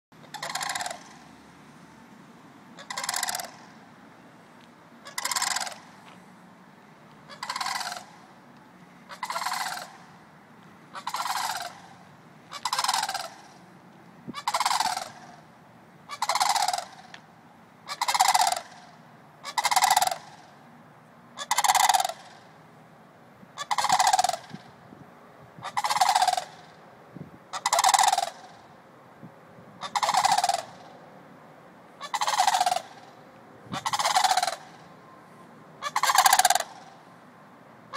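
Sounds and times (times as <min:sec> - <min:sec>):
cranes calling: 0:00.2 - 0:01.4, 0:02.8 - 0:03.8, 0:05.0 - 0:06.3, 0:07.2 - 0:13.7, 0:14.3 - 0:20.6, 0:21.3 - 0:22.6, 0:23.6 - 0:24.8, 0:25.6 - 0:26.8, 0:27.5 - 0:28.8, 0:29.8 - 0:31.0, 0:32.0 - 0:37.1.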